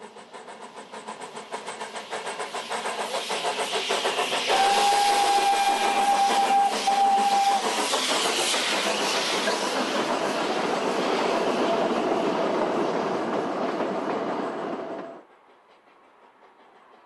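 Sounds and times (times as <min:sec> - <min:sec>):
steam locomotive chugging: 0:00.0 - 0:17.0
steam whistle blasts: 0:04.5 - 0:07.8.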